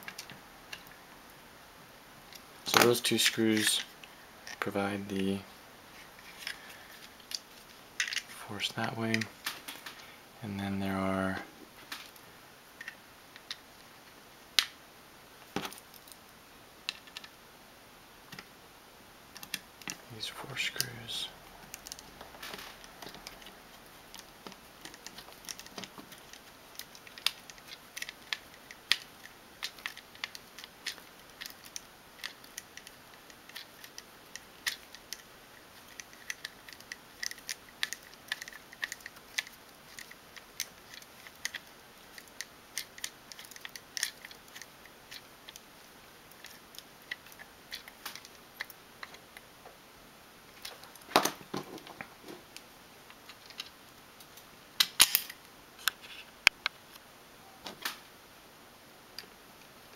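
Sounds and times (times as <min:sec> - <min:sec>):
small plastic parts clicking: 0:00.0 - 0:01.0, 0:06.4 - 0:08.3, 0:20.7 - 0:45.7, 0:46.3 - 0:49.2, 0:53.1 - 0:56.0.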